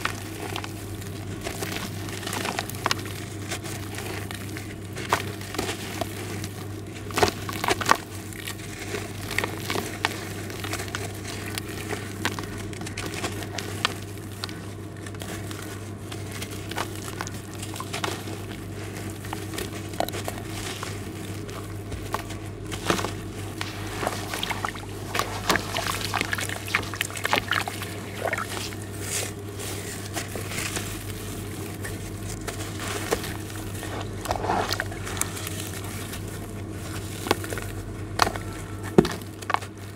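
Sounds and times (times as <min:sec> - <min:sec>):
steady low hum: 0:00.0 - 0:39.9
small splashes in water: 0:24.2 - 0:28.6.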